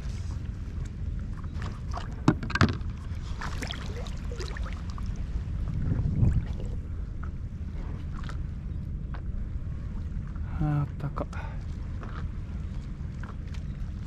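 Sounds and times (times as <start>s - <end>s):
wind rumble on microphone: 0.0s - 14.0s
water splashing and dripping: 3.4s - 5.2s.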